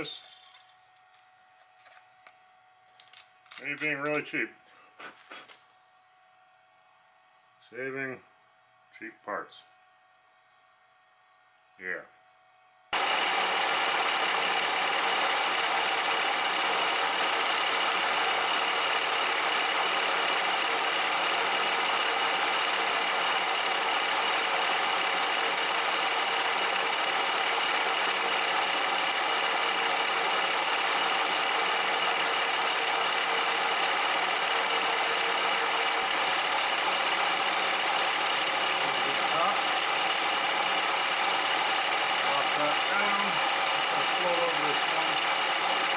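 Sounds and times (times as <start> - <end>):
milling machine cutting metal: 13.0 - 45.9.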